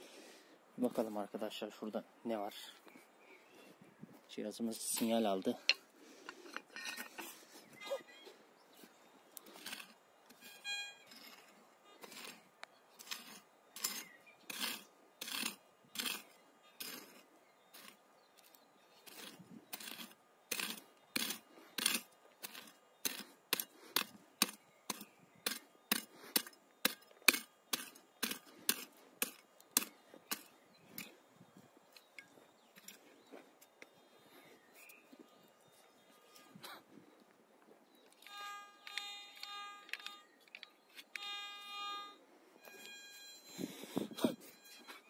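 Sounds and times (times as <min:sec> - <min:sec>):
short beep: 0:10.4 - 0:11.1, 0:41.2 - 0:45.0
pickaxe striking stony soil: 0:19.1 - 0:31.1.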